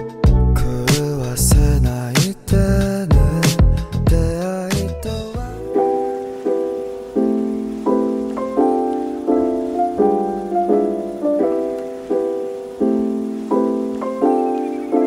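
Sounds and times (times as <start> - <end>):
soft piano chords: 5.1 - 15.0.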